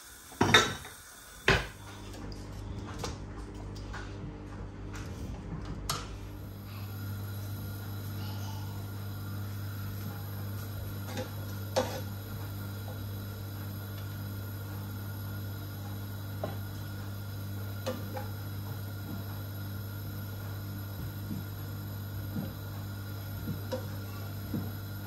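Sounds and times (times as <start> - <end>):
low hum: 1.8 - 19.8.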